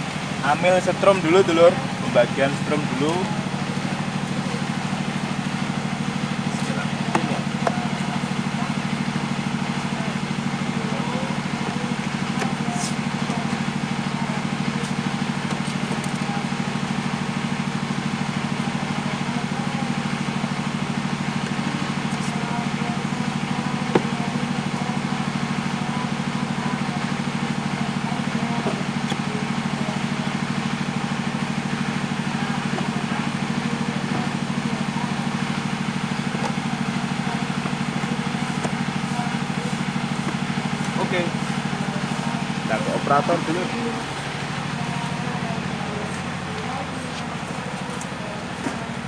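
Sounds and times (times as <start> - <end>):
diesel generator droning: 0.0 - 49.0.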